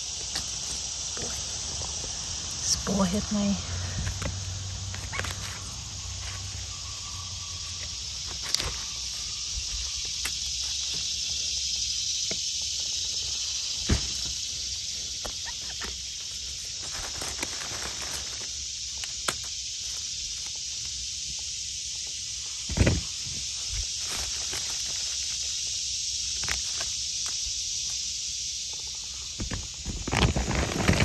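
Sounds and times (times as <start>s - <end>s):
insect chorus drone: 0.0s - 31.0s
snaps and rustles: 4.0s - 6.7s, 15.1s - 20.6s.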